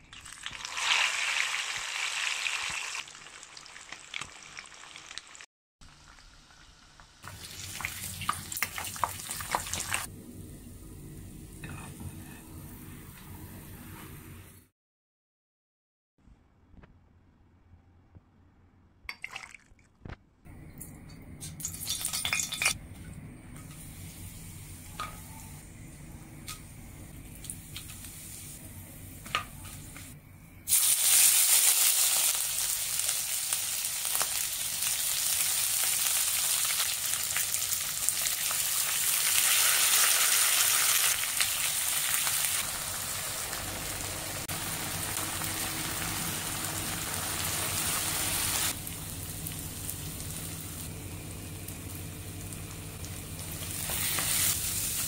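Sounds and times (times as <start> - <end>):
food sizzling in hot oil: 0.0 - 10.1, 30.7 - 55.0
low steady hum: 10.1 - 13.8.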